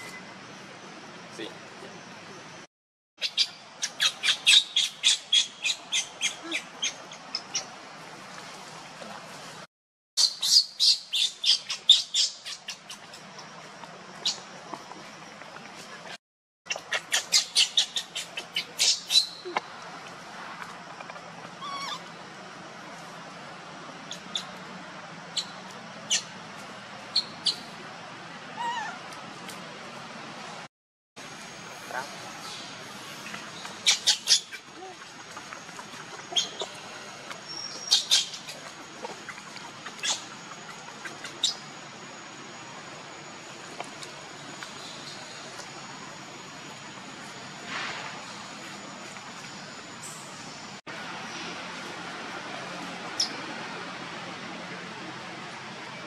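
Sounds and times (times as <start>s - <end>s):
infant monkey squeaking: 3.2s - 7.7s, 16.7s - 19.6s, 21.6s - 22.1s, 24.1s - 24.5s, 28.6s - 29.0s, 33.8s - 35.0s, 36.2s - 36.8s, 39.3s - 41.7s
baby monkey squealing: 16.7s - 19.6s, 21.6s - 22.1s, 28.6s - 29.0s, 36.3s - 36.7s
infant monkey whimpering: 21.6s - 22.1s.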